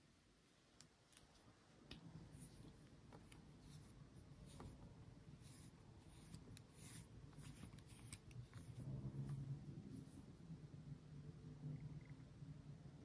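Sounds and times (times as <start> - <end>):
fingers rubbing and clicking a pen: 5.4 - 8.8.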